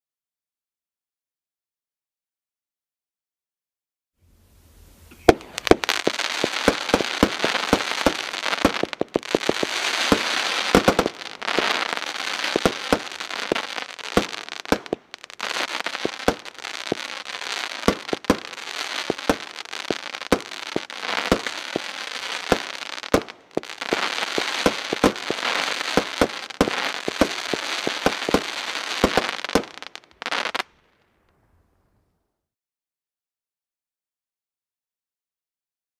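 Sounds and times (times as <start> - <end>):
firework crackling hiss: 4.5 - 30.7.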